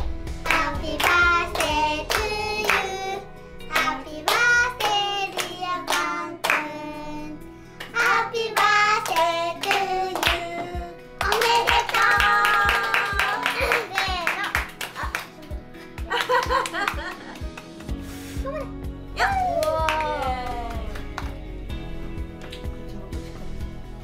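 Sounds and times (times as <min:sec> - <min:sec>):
family singing: 0:00.4 - 0:13.4
people clapping in time: 0:00.5 - 0:02.9, 0:07.8 - 0:10.5, 0:11.2 - 0:18.0, 0:19.5 - 0:21.5.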